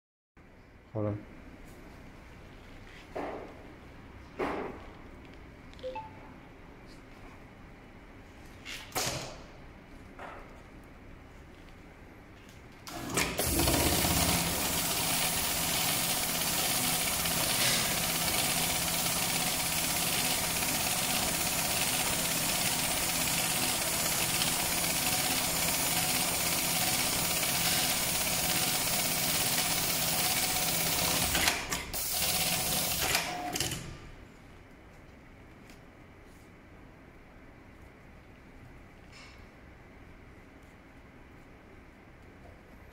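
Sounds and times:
sewing machine stitching: 12.9 - 33.8.

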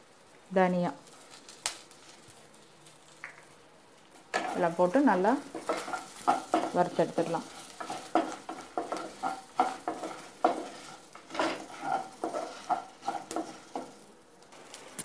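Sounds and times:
spices roasting in oil: 0.0 - 15.0
spatula scraping a pan: 4.3 - 14.2.

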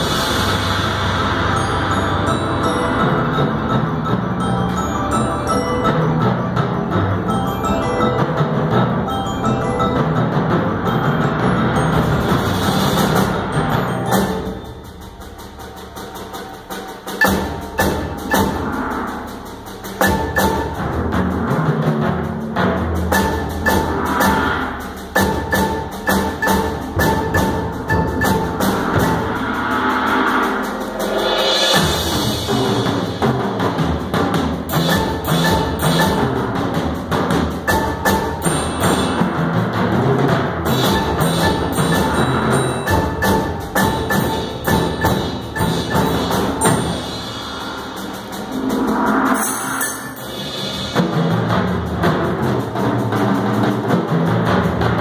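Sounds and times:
bright cymbal wash: 0.0 - 6.3, 22.9 - 39.8, 40.7 - 53.7
marimba and vibraphone: 0.0 - 15.1, 17.1 - 18.8, 20.0 - 21.5, 22.6 - 29.6, 34.2 - 48.3
drums playing: 0.0 - 55.0.

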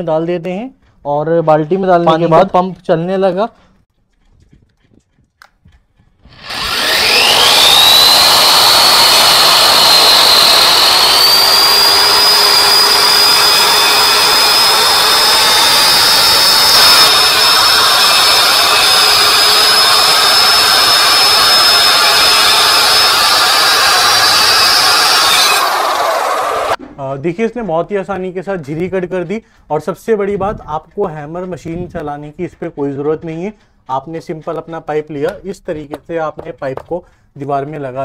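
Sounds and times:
blades cutting into brick wall: 5.4 - 26.8
wall chaser motor whine: 6.3 - 26.8.

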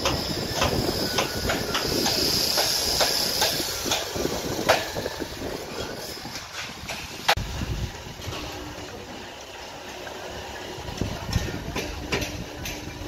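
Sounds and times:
sharp metallic knocks and clicks: 0.0 - 5.0
construction site rumble: 0.0 - 13.0.

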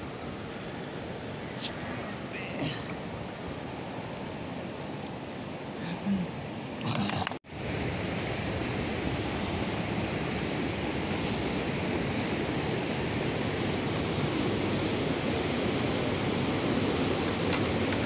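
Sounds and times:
river rushing over rapids: 7.4 - 18.0.

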